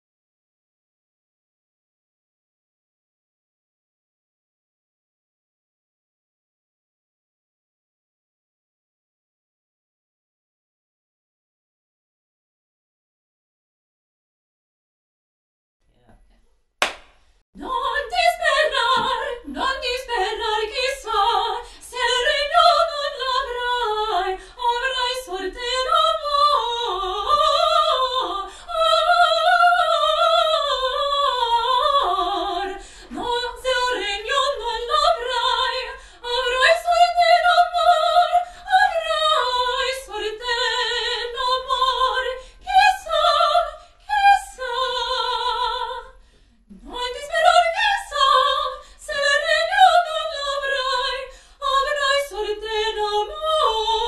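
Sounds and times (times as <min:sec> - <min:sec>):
woman singing opera: 0:17.6 - 0:54.0.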